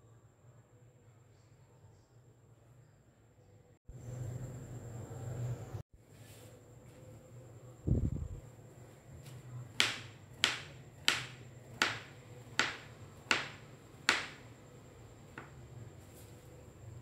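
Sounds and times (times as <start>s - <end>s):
knife tapping on plastic cutting board: 9.8s - 14.4s.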